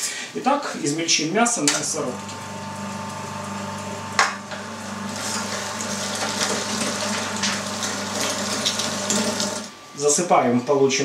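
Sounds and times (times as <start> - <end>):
electric meat grinder motor hum: 2.0 - 9.7.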